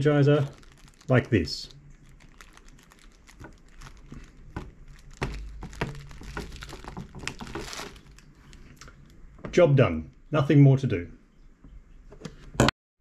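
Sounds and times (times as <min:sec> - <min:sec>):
cable handling: 0:00.4 - 0:09.2.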